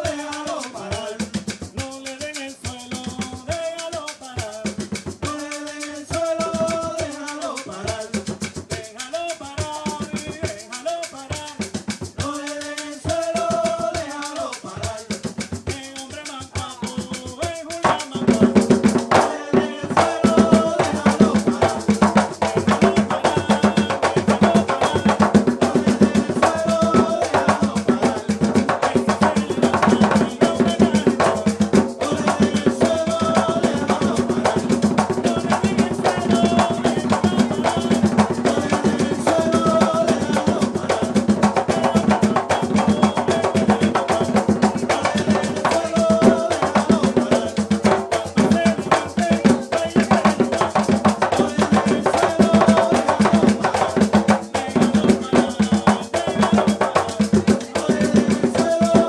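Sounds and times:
hand drums: 0.0s - 59.0s
maraca: 0.0s - 59.0s
sticks beating steady pattern: 0.0s - 59.0s
person singing: 12.2s - 59.0s.

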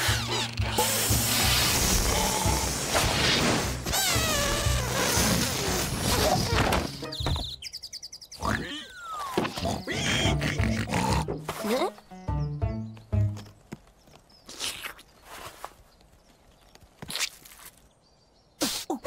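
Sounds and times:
background music: 0.0s - 7.6s, 9.6s - 13.6s.

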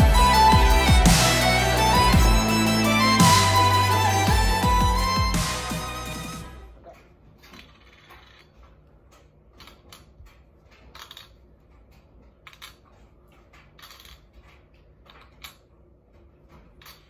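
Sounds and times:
game pieces clicking on board: 7.5s - 15.6s.

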